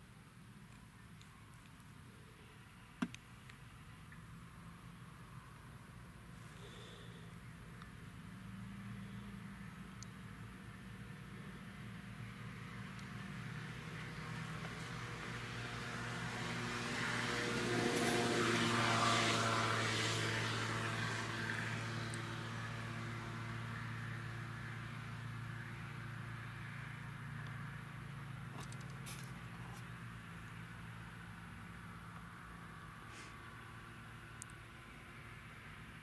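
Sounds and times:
tractor diesel engine under load: 13.2s - 31.9s.

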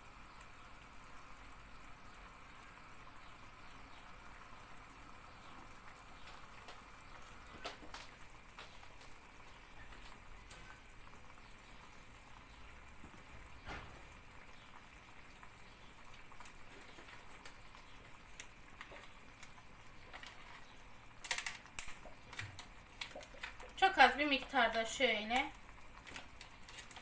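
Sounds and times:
pudding popping in a pot: 0.0s - 27.0s
wrapper crinkling: 25.9s - 27.0s.

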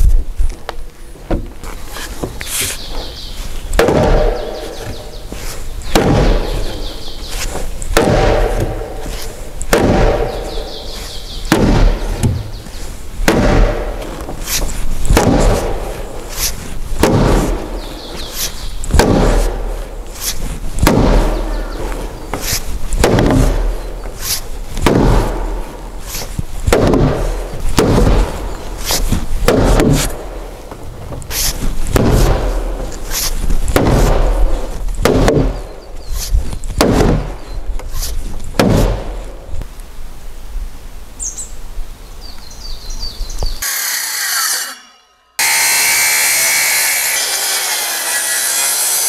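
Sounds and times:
wooden mallet striking timber: 3.8s - 5.0s, 5.9s - 6.8s, 7.9s - 10.6s, 11.5s - 12.5s, 20.8s - 23.8s, 29.4s - 30.2s, 35.0s - 35.7s.

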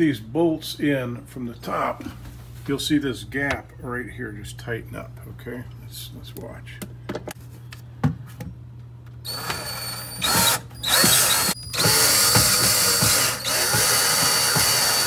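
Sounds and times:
cordless drill driving bolt: 9.3s - 15.0s.

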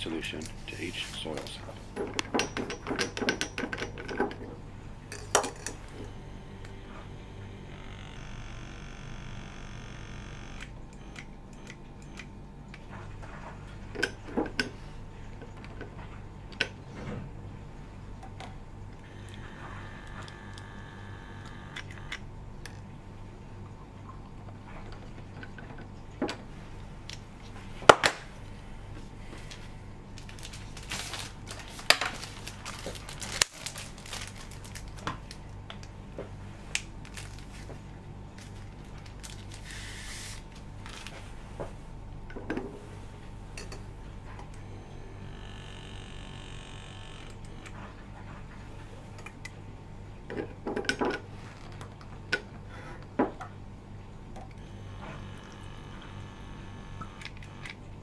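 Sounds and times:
steady low hum: 0.0s - 58.0s
small pipette motor whirring: 5.6s - 12.3s, 19.0s - 22.3s, 44.5s - 47.9s, 54.5s - 58.0s.

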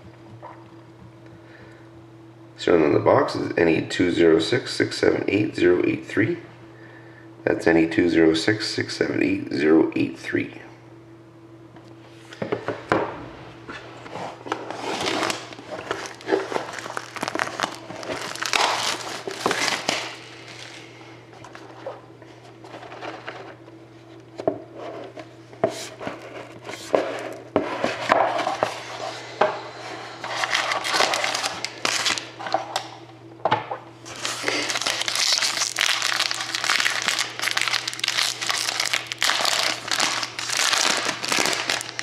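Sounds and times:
foil wrapper crinkling: 14.6s - 20.9s, 30.3s - 32.4s, 34.0s - 42.0s.

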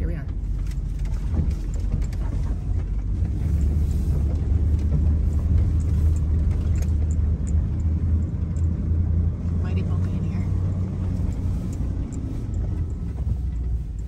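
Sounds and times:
car engine and tyre rumble: 0.0s - 14.0s
light knocks and rattles: 0.2s - 8.9s.

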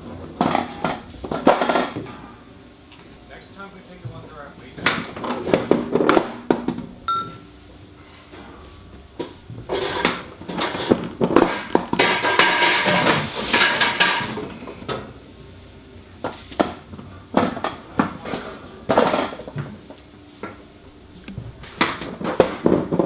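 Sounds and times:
short beep: 7.1s - 7.4s
metal clanks and knocks: 9.2s - 14.6s.

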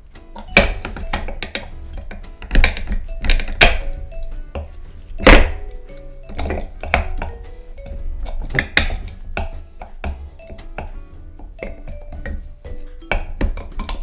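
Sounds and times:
background music with bass: 0.0s - 14.0s
sharp percussive hits: 5.2s - 7.5s.

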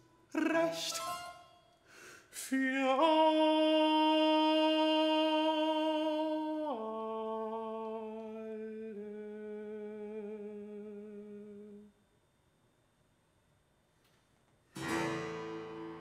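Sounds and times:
countertenor singing: 0.3s - 1.5s.

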